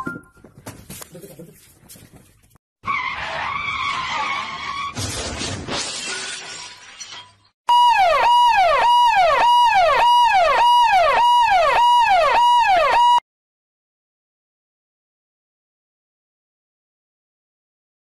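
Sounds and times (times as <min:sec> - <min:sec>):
siren sliding down in pitch: 0:07.7 - 0:13.2.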